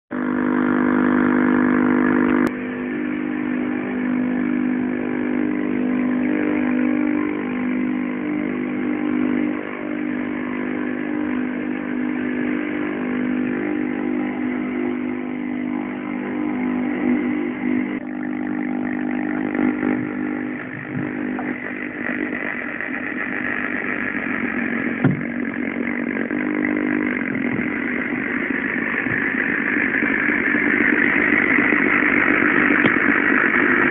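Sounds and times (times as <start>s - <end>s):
electronic buzzing drone: 0.1s - 33.9s.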